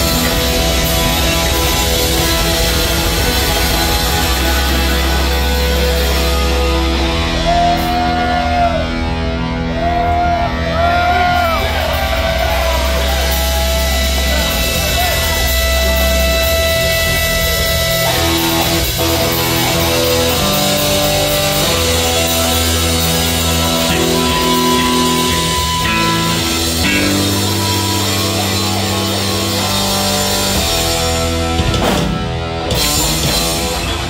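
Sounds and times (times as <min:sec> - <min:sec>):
bass guitar: 0:00.0 - 0:34.0
distorted electric guitar: 0:00.0 - 0:34.0
drums: 0:00.0 - 0:34.0.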